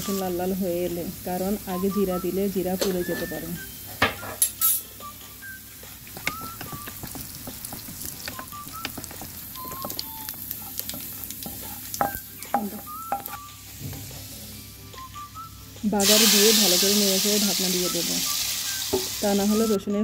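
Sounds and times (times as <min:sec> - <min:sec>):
spices sizzling in hot oil: 0:00.0 - 0:14.7, 0:15.9 - 0:19.8
spatula knocking: 0:06.0 - 0:13.4.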